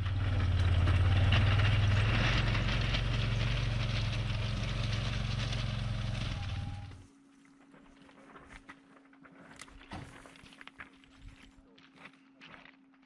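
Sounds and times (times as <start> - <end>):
utility vehicle engine idling: 0.0 - 7.0.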